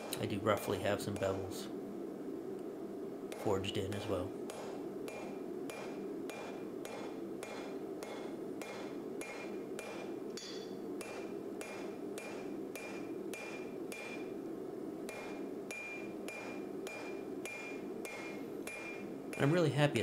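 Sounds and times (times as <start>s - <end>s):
hammer striking metal on anvil: 4.5s - 14.3s, 15.1s - 19.6s.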